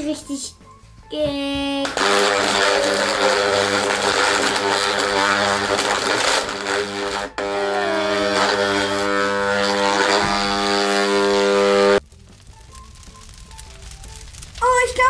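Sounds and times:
blender motor humming: 1.9 - 12.0.

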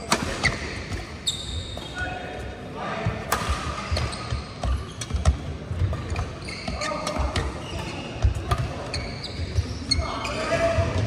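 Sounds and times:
shoes squeaking on court floor: 0.0 - 2.2, 3.5 - 11.0
racket hitting shuttlecock: 3.3 - 8.9.

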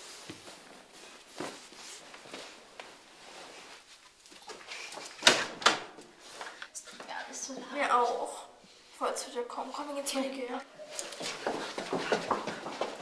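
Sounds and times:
hurried footsteps: 11.0 - 13.0.

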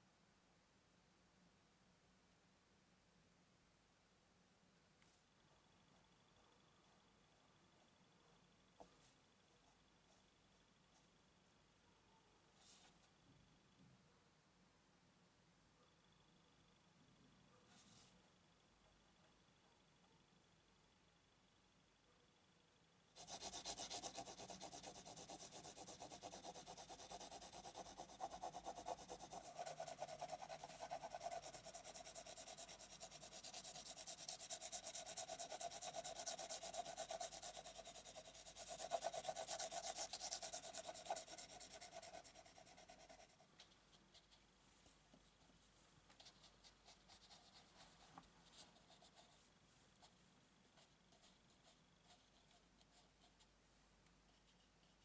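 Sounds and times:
pencil scratching on paper: 23.2 - 43.5, 46.2 - 49.4, 50.8 - 53.5.

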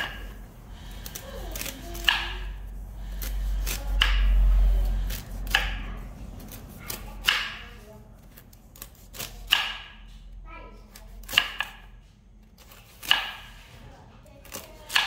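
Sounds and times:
low rumble: 0.0 - 8.3
knife chopping fruit: 0.0 - 13.8, 14.4 - 15.0.

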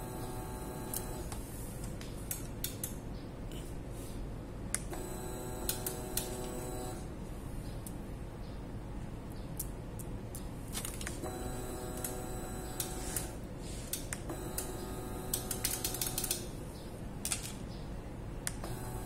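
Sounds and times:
sharp clicks: 2.0 - 3.0.

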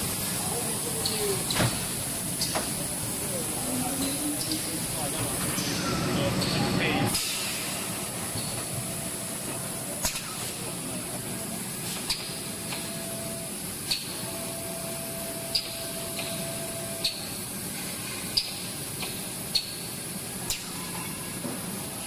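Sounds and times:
machine whirring and hissing: 0.0 - 22.0
sharp machine click: 10.0 - 10.5, 20.5 - 20.8.

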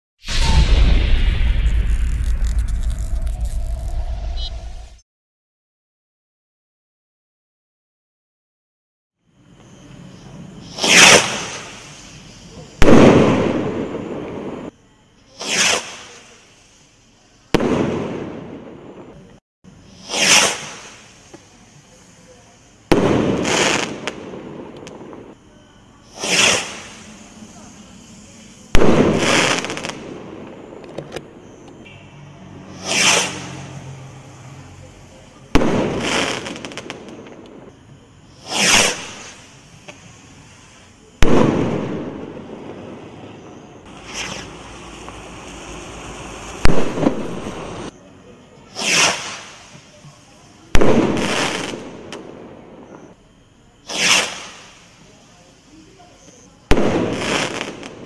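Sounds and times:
firework rocket bursting: 0.2 - 5.0, 10.6 - 14.7, 15.3 - 19.1, 19.8 - 21.6, 22.8 - 25.4, 26.0 - 30.9, 32.6 - 34.0, 35.5 - 43.2, 43.8 - 47.9, 48.7 - 50.0, 50.7 - 52.5, 53.8 - 55.1, 56.7 - 58.0
firework sharp bang: 0.2 - 5.0, 12.8 - 14.6, 17.5 - 18.8, 22.9 - 25.2, 28.7 - 30.5, 35.5 - 37.2, 41.2 - 42.7, 43.9 - 45.2, 46.6 - 47.6, 50.7 - 52.4, 56.7 - 58.0
rocket launch whoosh: 0.2 - 5.0, 43.9 - 44.6.

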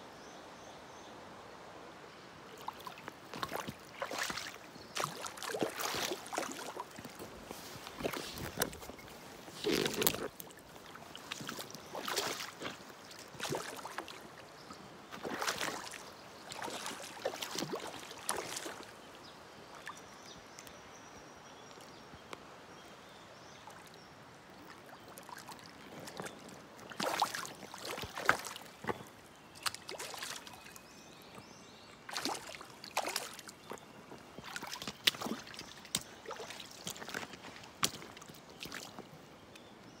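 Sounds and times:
fish thrashing and splashing: 2.7 - 14.3, 15.1 - 18.9, 26.1 - 29.0, 32.1 - 33.8.

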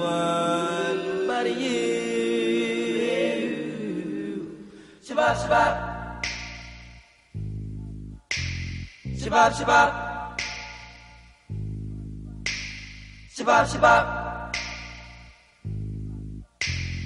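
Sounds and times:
vocal group singing harmony: 0.0 - 6.9, 9.2 - 11.2, 13.3 - 15.3
steady deep tone: 5.4 - 17.0.

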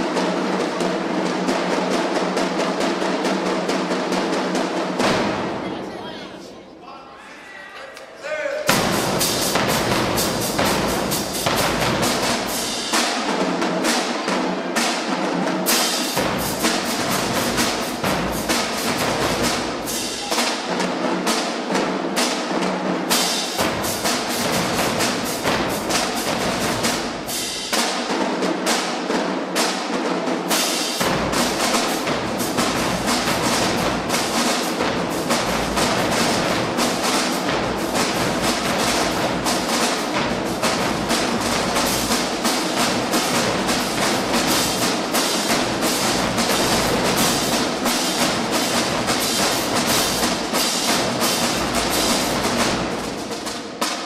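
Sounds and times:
snare and tenor drums: 0.0 - 6.5, 7.9 - 54.0
bass drums: 8.7 - 12.6.

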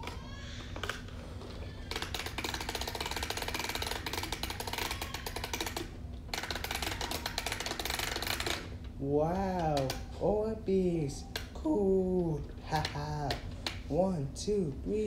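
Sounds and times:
water beads rattling in package: 1.9 - 8.6.

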